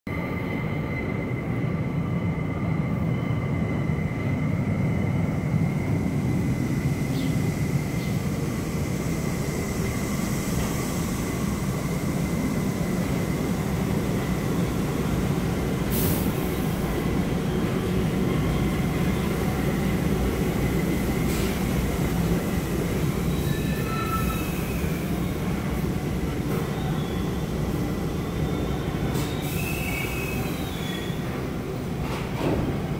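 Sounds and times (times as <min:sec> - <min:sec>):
subway train rumble: 0:00.1 - 0:32.9
short air hisses: 0:15.9 - 0:16.5.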